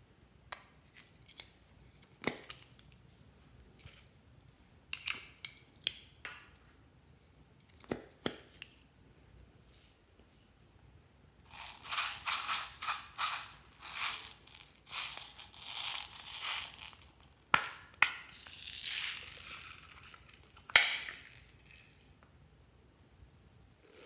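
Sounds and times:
rustling: 11.5s - 22.1s.

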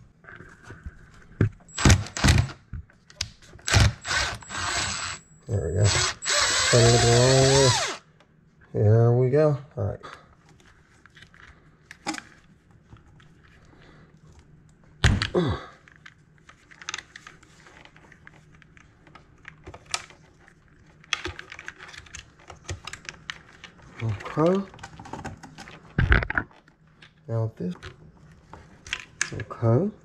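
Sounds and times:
small clicks and rustling: 10.4s - 15.0s, 15.8s - 29.6s.

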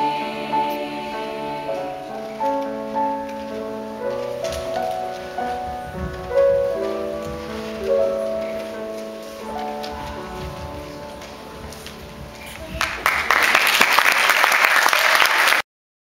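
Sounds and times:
piano playing slow chords: 0.0s - 12.6s.

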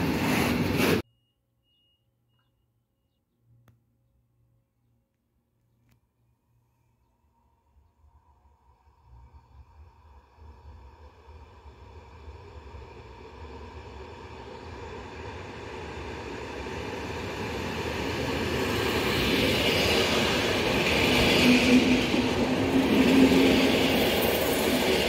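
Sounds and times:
train wheel and rail noise: 0.0s - 1.0s, 8.6s - 25.0s.

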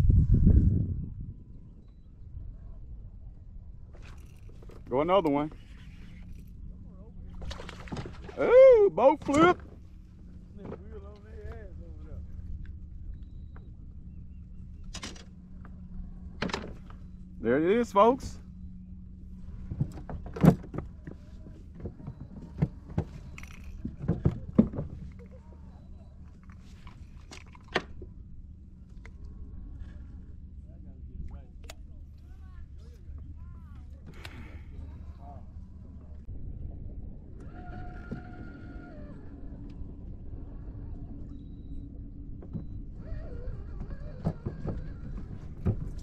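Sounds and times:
wind rumbling on microphone: 0.0s - 17.5s, 18.2s - 46.0s.

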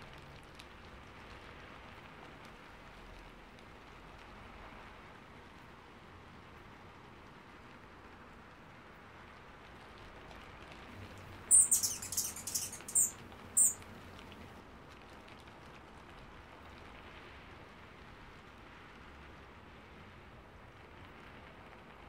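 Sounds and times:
hummingbird chirping: 11.5s - 13.8s.

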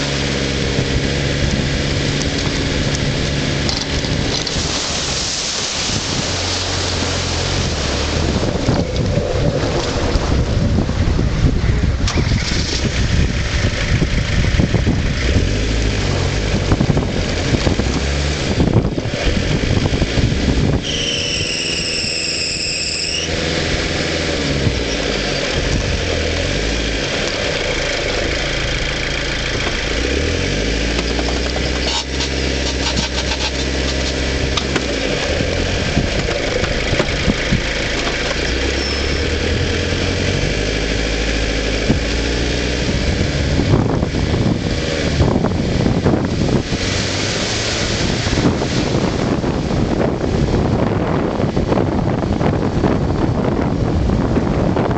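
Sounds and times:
vehicle jolting: 0.0s - 51.8s
off-road vehicle engine running: 0.0s - 54.9s
wind noise: 0.0s - 54.9s
high whistle: 20.8s - 23.3s, 38.8s - 39.3s.

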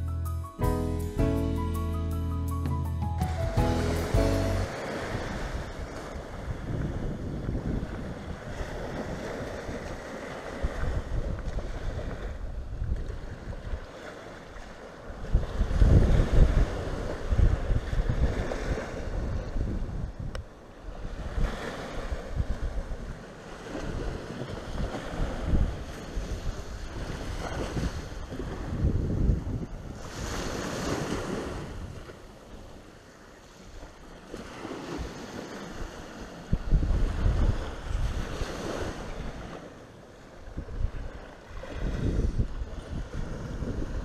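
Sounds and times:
small sea waves breaking: 4.0s - 44.0s
wind buffeting microphone: 4.1s - 32.3s, 34.3s - 39.7s, 40.4s - 44.0s.

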